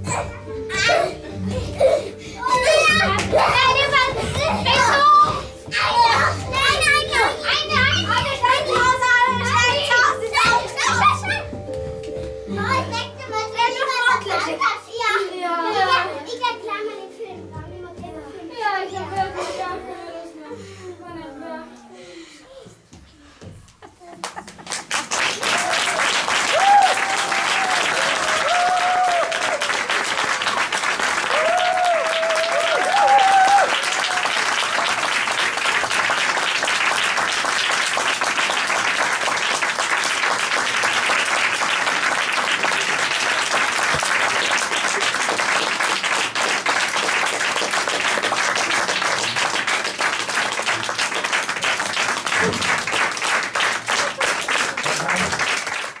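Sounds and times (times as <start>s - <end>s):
audience applauding: 24.2s - 56.0s
high shouts: 25.4s - 29.8s, 31.2s - 34.4s.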